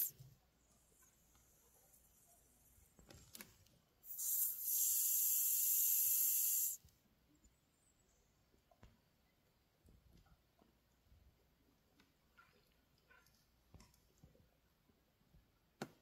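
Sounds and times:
snake hissing: 0:04.0 - 0:06.8.

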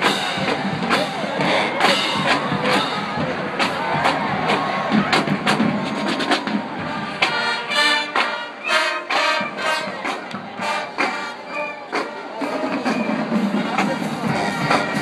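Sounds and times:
drum hits: 0:00.0 - 0:08.4
brass chords: 0:00.0 - 0:15.0.

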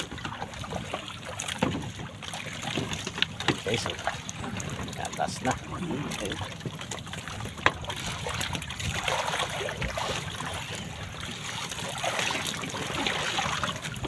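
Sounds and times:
seawater splashing off a net: 0:11.6 - 0:14.0.

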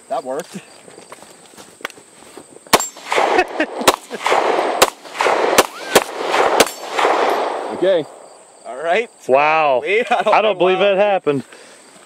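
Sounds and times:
pistol shots: 0:02.7 - 0:08.2
steel targets ringing: 0:06.6 - 0:07.4.

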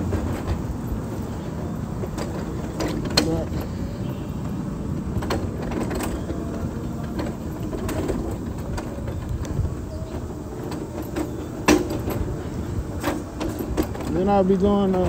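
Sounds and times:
clicks and rattles: 0:00.0 - 0:15.0
wheelchair wheels rumbling: 0:00.0 - 0:15.0.

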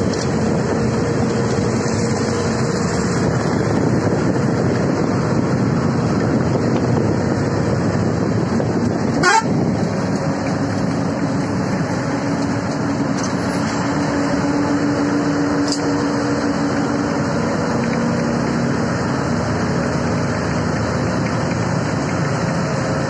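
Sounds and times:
bus engine and road noise: 0:00.0 - 0:23.0.

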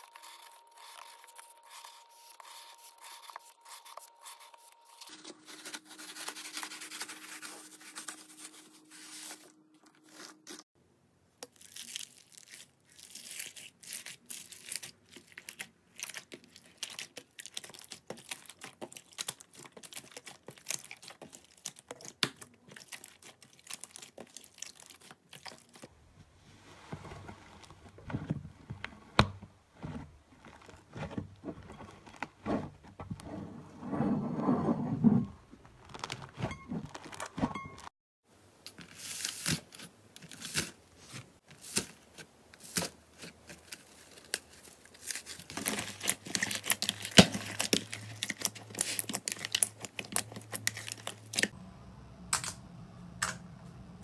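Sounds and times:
slime crackling and popping: 0:11.4 - 0:25.9
slime squishing: 0:11.5 - 0:25.9, 0:42.6 - 0:51.6.

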